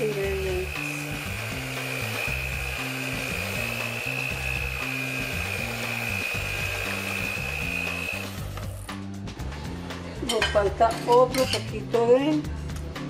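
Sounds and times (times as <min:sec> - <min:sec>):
electric hand mixer whining: 0:00.0 - 0:09.0
background music: 0:00.0 - 0:13.0.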